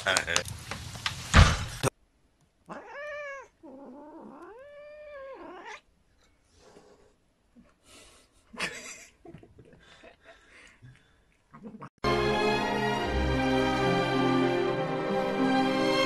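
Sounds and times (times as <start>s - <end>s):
cat meowing: 2.6s - 5.8s.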